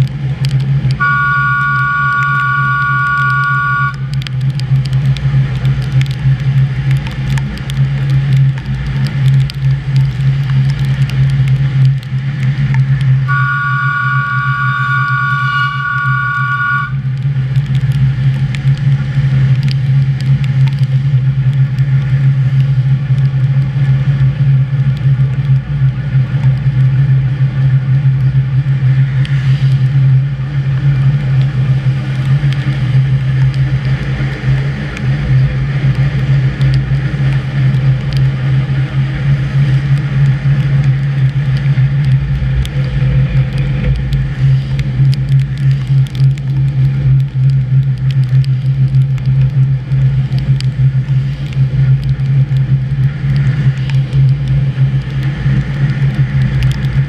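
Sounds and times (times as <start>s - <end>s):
train drive humming: 0.0s - 57.0s
wheel on rail rumble: 0.0s - 57.0s
high multi-pitch tone: 1.0s - 4.0s, 13.3s - 17.0s.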